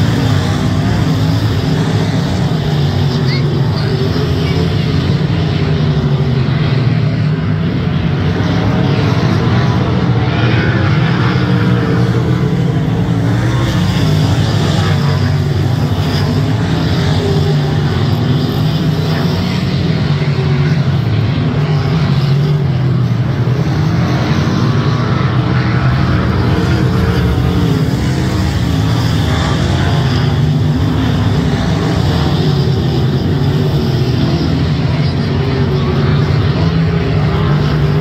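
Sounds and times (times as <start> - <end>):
racing car engines: 0.0 - 38.0.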